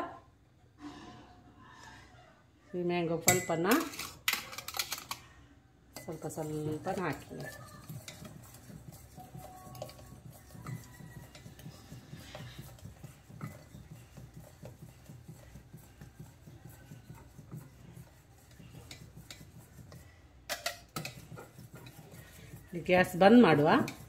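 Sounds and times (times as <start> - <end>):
whisk stirring in a pot: 6.0 - 24.0.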